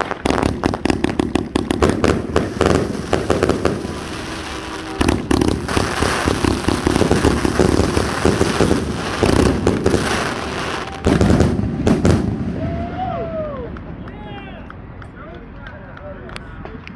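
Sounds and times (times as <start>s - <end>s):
crackling star bursts: 0.0s - 12.8s
firework launches: 0.0s - 13.1s.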